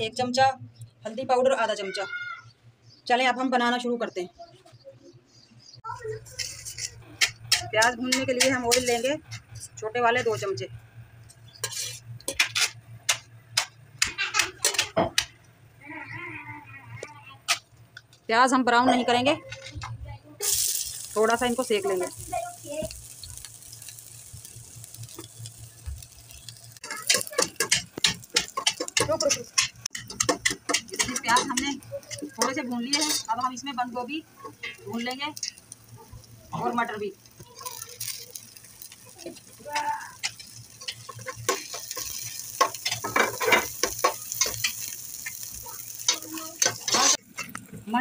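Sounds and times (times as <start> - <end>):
onions sizzling in oil: 6.0 - 19.3, 20.4 - 48.0
spatula scraping a pot: 6.2 - 7.1, 11.5 - 12.8, 46.6 - 47.2
spoon scraping and knocking pot: 11.5 - 15.3, 27.1 - 33.4.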